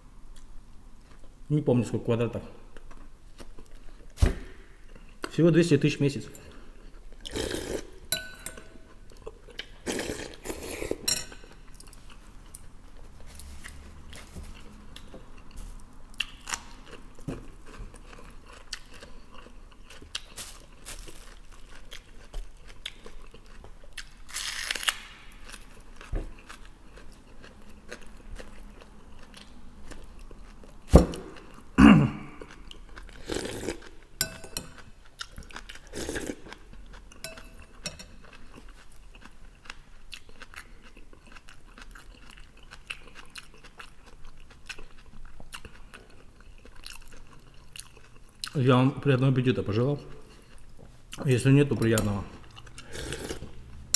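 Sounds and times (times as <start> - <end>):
person chewing: 2.7 - 5.3, 6.4 - 48.6, 50.1 - 53.9
metal spoon clinking on bowl: 8.1 - 8.8, 11.1 - 11.6, 34.2 - 34.8, 37.2 - 38.1.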